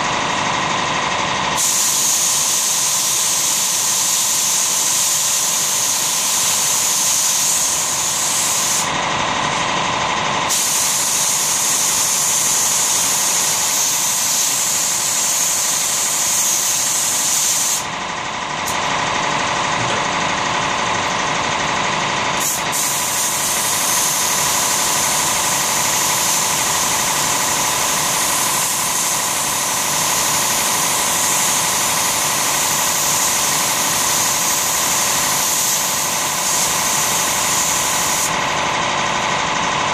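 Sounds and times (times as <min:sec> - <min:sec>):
mechanical hum: 0:00.0 - 0:39.9
spray gun hissing: 0:01.6 - 0:08.9, 0:10.5 - 0:17.9, 0:22.4 - 0:38.5.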